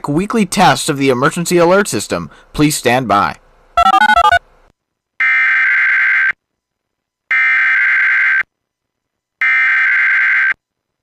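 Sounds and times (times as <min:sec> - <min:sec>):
screechy digital data tones: 0:03.8 - 0:04.4.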